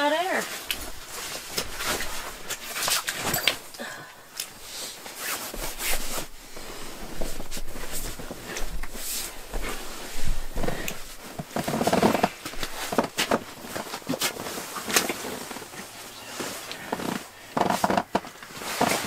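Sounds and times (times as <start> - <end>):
nylon sleeping mat rustling: 0.0 - 3.7, 4.5 - 19.0.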